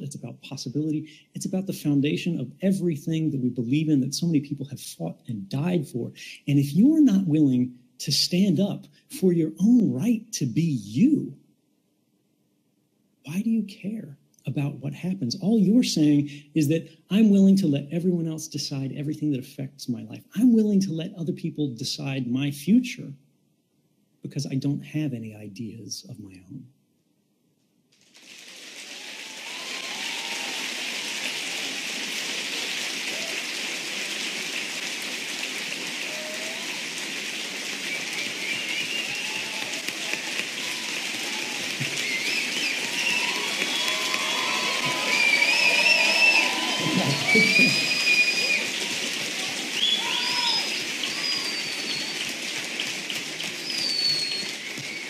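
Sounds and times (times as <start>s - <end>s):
audience applauding: 28.0s - 55.0s
voices cheering: 28.5s - 55.0s
person whooping: 28.9s - 31.9s, 33.0s - 33.6s, 36.0s - 37.0s, 38.4s - 51.8s
whistles: 37.9s - 48.9s, 49.7s - 52.3s, 53.6s - 55.0s.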